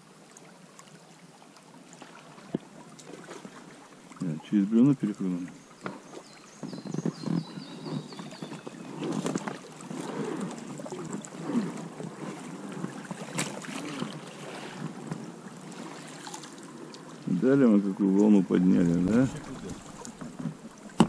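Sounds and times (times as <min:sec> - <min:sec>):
water sloshing around boat hull: 0:00.2 - 0:21.0
songbird trilling: 0:05.5 - 0:08.9
sharp knocks on boat: 0:05.8 - 0:09.6, 0:19.4 - 0:21.0.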